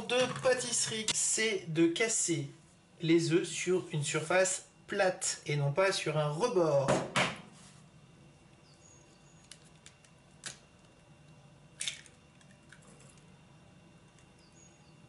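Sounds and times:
low steady hum: 0.0s - 15.0s
faint bird chirping: 8.6s - 9.6s, 14.2s - 15.0s
egg cracking and shell clicks: 9.4s - 13.3s.

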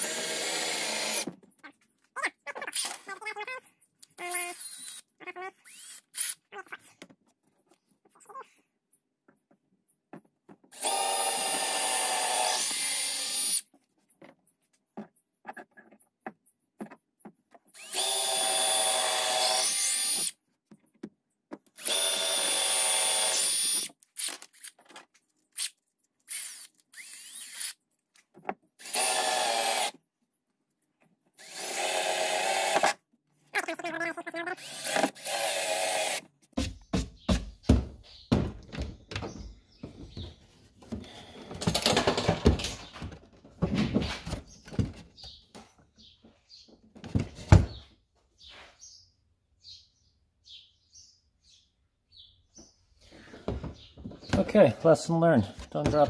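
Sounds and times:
cordless drill whining: 0.0s - 1.3s, 4.6s - 5.0s, 5.6s - 6.4s, 10.7s - 13.6s, 17.8s - 20.4s, 21.8s - 24.7s, 26.3s - 27.8s, 28.8s - 30.0s, 31.4s - 33.0s, 34.6s - 36.2s
small clicks and handling noises: 23.9s - 27.0s.

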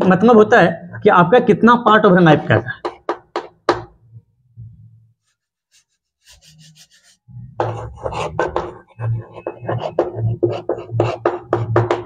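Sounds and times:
chalk scratching on blackboard: 5.2s - 12.0s.

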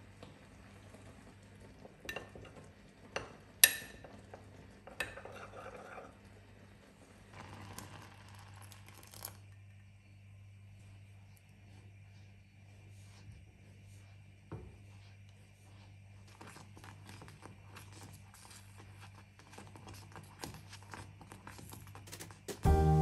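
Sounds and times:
spoon scraping inside glass: 5.0s - 6.2s.

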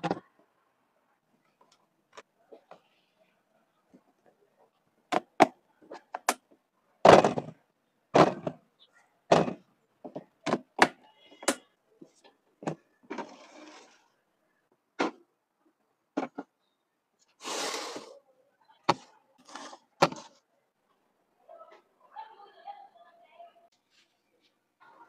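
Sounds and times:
plastic containers clicking and knocking: 0.0s - 0.3s, 5.1s - 8.6s, 9.3s - 13.3s, 16.1s - 16.5s, 20.0s - 20.4s.

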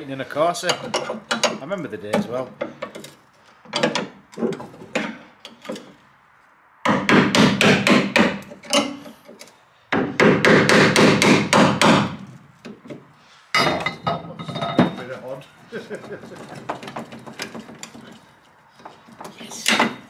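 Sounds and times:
hammer striking chisel on metal: 6.9s - 9.1s, 9.9s - 12.2s.

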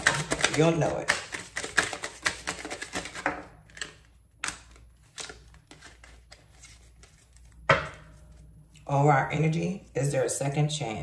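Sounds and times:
cards being shuffled: 0.0s - 8.5s.

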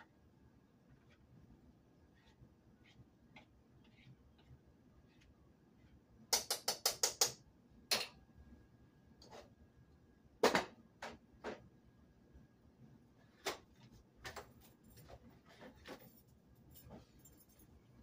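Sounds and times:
spoon tapping against pots: 6.3s - 8.2s.

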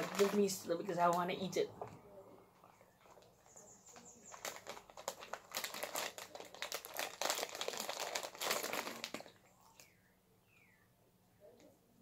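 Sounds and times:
plastic snack packet crinkling: 0.0s - 1.6s, 2.6s - 9.9s.

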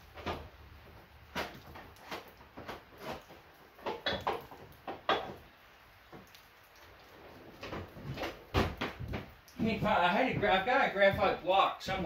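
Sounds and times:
objects knocking and clattering: 1.3s - 6.4s, 7.4s - 12.0s.

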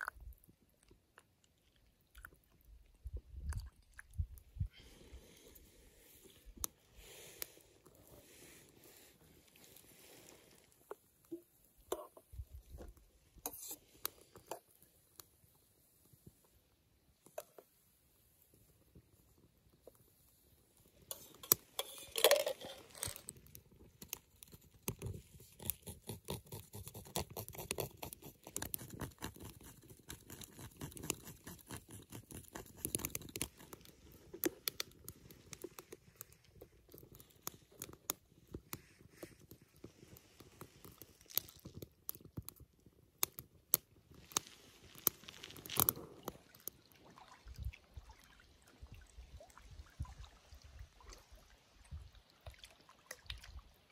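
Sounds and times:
cups and camp gear handled: 6.1s - 14.8s, 20.8s - 42.7s
twig fire crackling: 17.1s - 46.8s.

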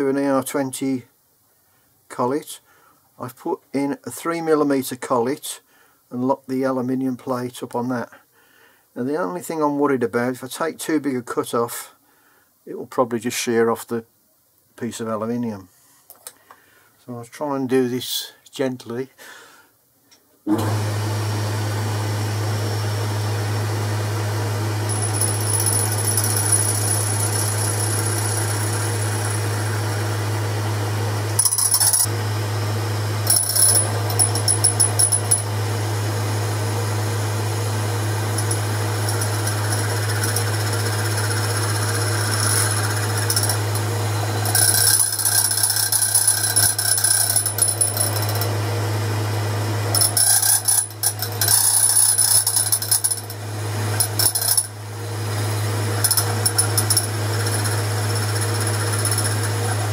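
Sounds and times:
cutting tool high whine: 20.5s - 59.9s
lathe running hum: 20.5s - 59.9s.

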